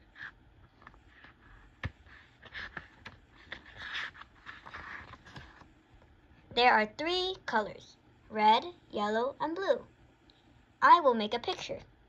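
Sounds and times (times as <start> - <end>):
book pages turning: 0.0 - 5.7.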